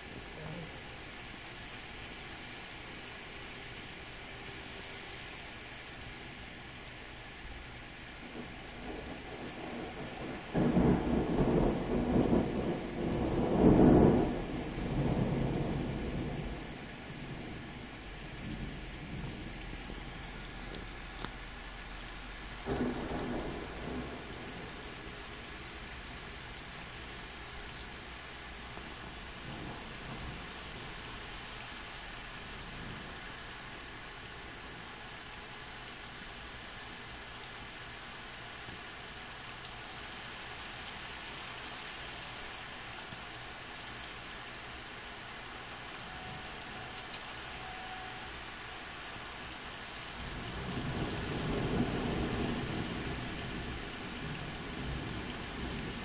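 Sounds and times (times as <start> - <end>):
steady rain hissing: 0.0 - 56.0
thunder rumbling: 8.2 - 21.3, 22.5 - 27.8, 28.7 - 31.2, 50.2 - 56.0.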